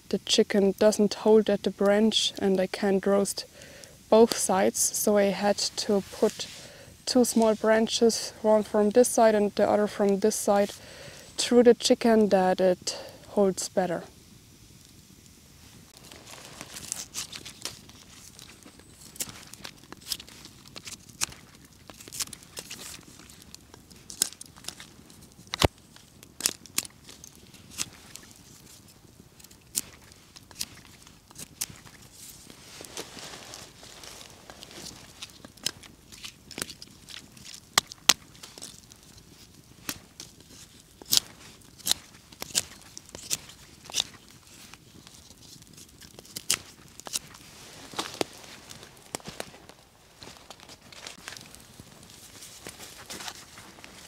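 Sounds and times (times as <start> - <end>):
campfire crackling: 0.0 - 54.0
knife shaving wood: 16.0 - 54.0.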